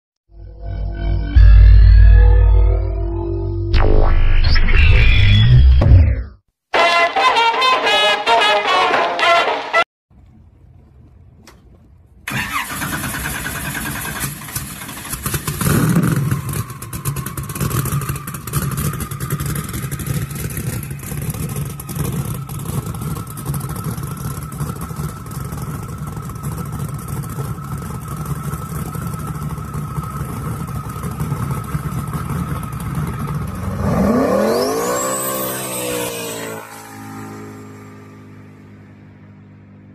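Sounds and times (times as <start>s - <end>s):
high whine: 0.3s - 7.4s, 17.8s - 39.8s
boat engine revving: 28.8s - 38.0s.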